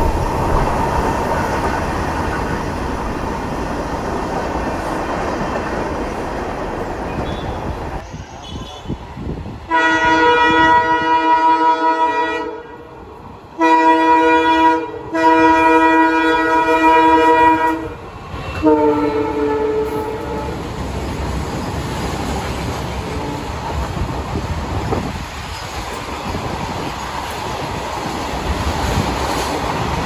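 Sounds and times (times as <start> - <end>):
passing train rumble: 0.0 - 30.0
locomotive air horn blasts: 9.7 - 12.9, 13.6 - 20.6.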